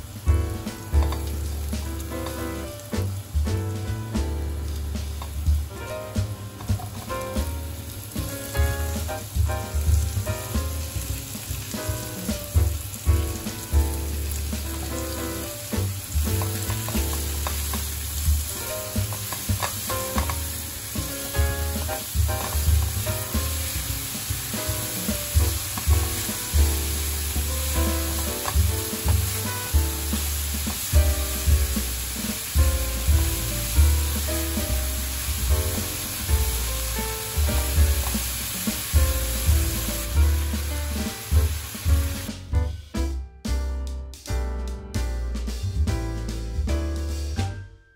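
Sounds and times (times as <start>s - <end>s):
food sizzling in frying pan: 0.0s - 3.4s, 4.1s - 42.3s.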